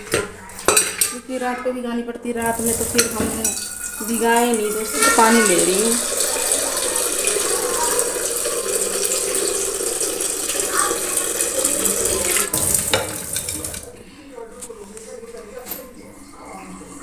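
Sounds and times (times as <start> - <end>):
tap water running into vessel: 2.4 - 13.9.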